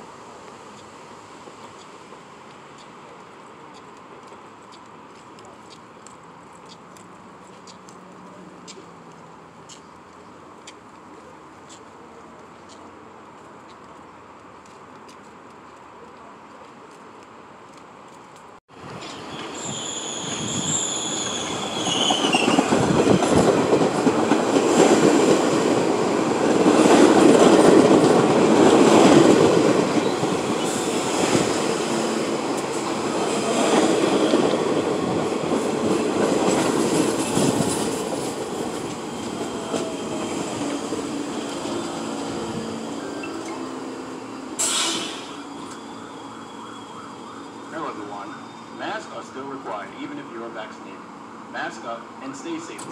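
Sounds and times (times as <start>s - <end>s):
train wheels rumbling on rails: 17.7s - 45.9s
train wheel squeal: 18.9s - 23.4s, 39.0s - 49.0s
short burst of hiss: 44.5s - 45.5s.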